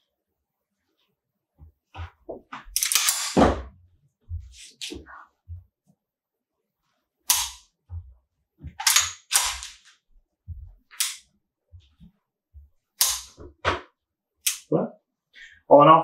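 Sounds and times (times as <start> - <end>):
pistol slide racking: 2.7 - 3.4, 8.8 - 9.9, 10.9 - 11.2, 13.0 - 13.4.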